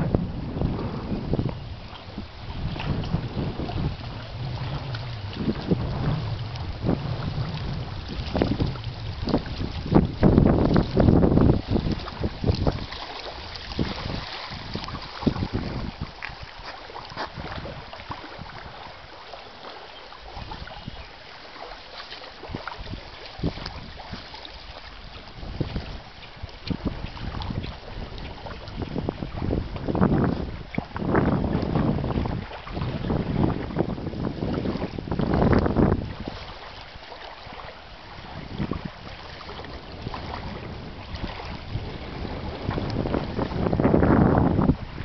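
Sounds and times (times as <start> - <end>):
storm winds rushing: 0.0 - 12.9, 38.2 - 45.0
wind buffeting microphone: 0.0 - 45.0.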